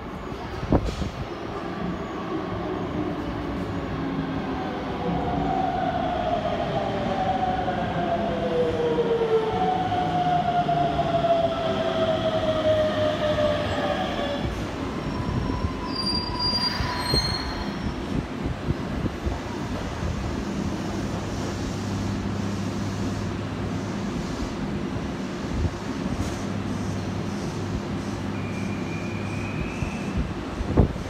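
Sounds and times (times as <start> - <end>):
brake squeal: 15.9 - 18.0.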